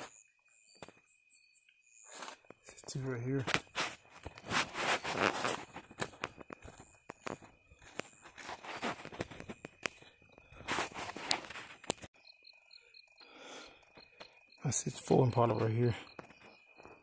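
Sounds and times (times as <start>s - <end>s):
footsteps: 2.1s - 12.1s
rustling handling noise: 3.4s - 12.1s.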